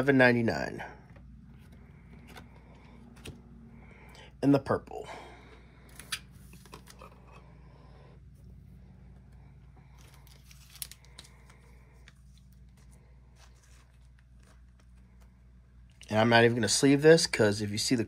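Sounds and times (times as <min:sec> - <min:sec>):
low steady hum: 0:00.0 - 0:18.0
cards rustling and sliding: 0:01.3 - 0:03.7, 0:05.8 - 0:07.4, 0:09.3 - 0:15.5.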